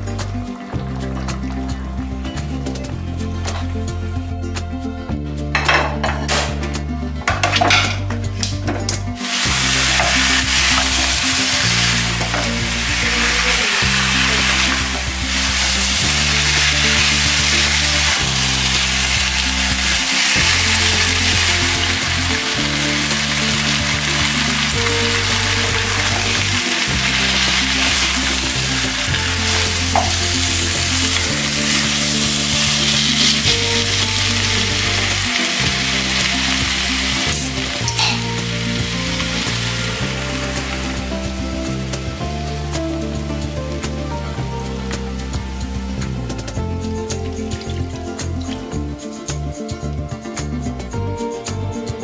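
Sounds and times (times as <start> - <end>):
background music with bass: 0.0 - 52.0
meat frying and sizzling: 7.3 - 48.8.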